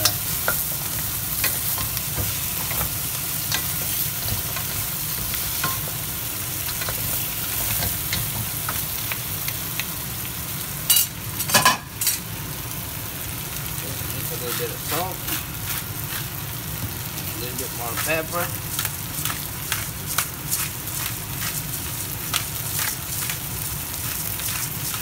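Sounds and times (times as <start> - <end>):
food sizzling in a wok: 0.0 - 25.0
wooden spatula scraping: 17.9 - 25.0.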